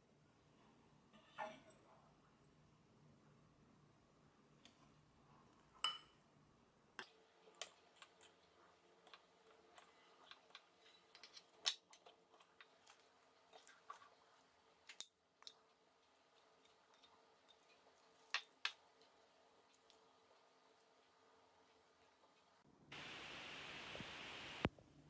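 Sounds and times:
metal spoon clinking on ceramic bowls: 5.8 - 6.2, 9.0 - 13.0, 14.8 - 15.6.

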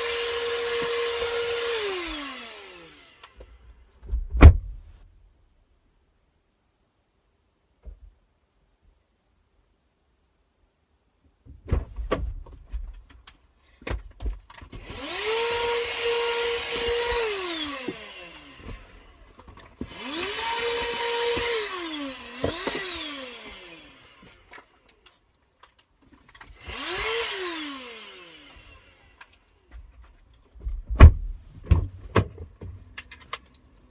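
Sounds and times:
vacuum cleaner motor: 0.0 - 3.4, 14.7 - 24.9, 26.5 - 29.5
knocks and bumps: 30.6 - 32.8.

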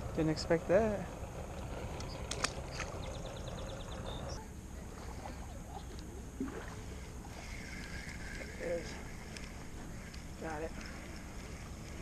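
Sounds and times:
low steady rumble: 0.0 - 12.0
fishing reel clicking: 6.9 - 12.0.

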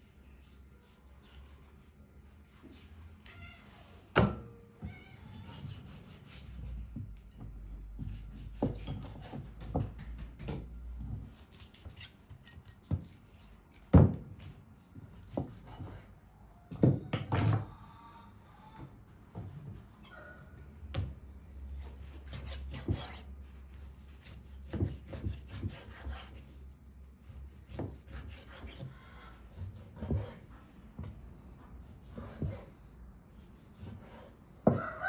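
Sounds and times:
faint animal call: 17.6 - 19.0, 20.0 - 20.7, 28.9 - 29.5.

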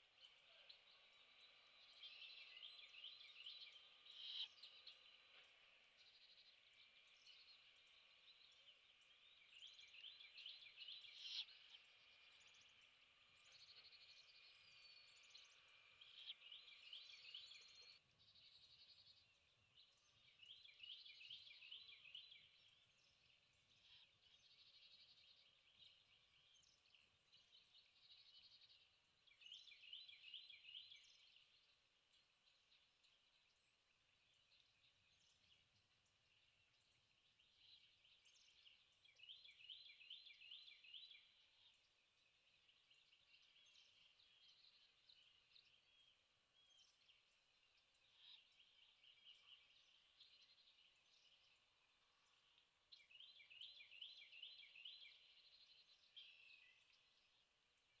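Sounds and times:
songbird trilling: 0.0 - 5.2.

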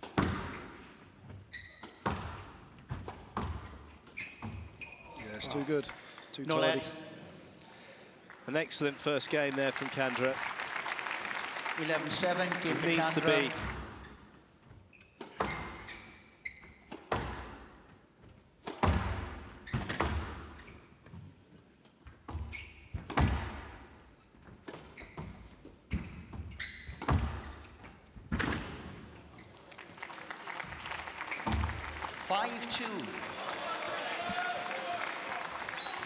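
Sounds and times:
squash ball hits echoing: 0.0 - 0.6, 1.8 - 3.7, 17.0 - 17.6, 18.6 - 20.4, 23.0 - 23.8, 26.9 - 27.6
shoe squeaks on court floor: 0.0 - 5.5, 13.9 - 17.2, 19.6 - 21.2, 22.3 - 23.3, 24.2 - 27.9, 29.2 - 29.6, 31.2 - 31.8.

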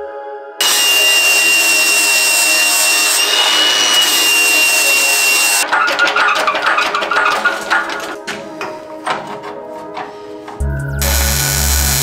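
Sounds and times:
angle grinder grinding steel: 0.6 - 8.2, 11.0 - 12.0
music with a beat: 10.5 - 12.0.

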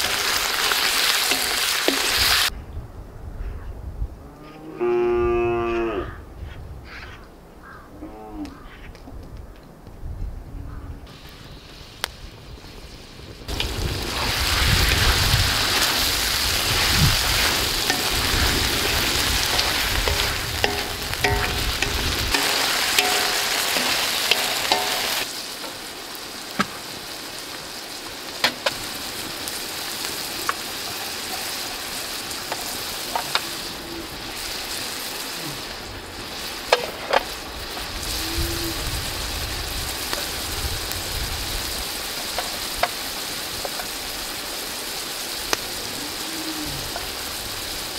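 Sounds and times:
meat sizzling in a wok: 0.0 - 2.5, 11.1 - 47.9
spatula scraping and tapping pan: 17.4 - 25.3.

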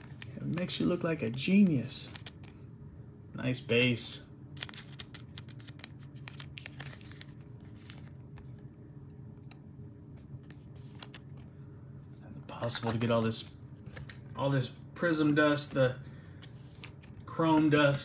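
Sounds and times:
plastic sleeve crinkling: 4.5 - 8.2.

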